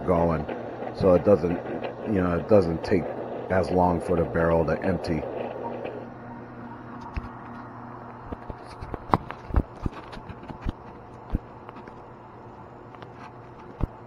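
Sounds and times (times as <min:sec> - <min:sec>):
drink machine humming: 0:00.0 - 0:14.0.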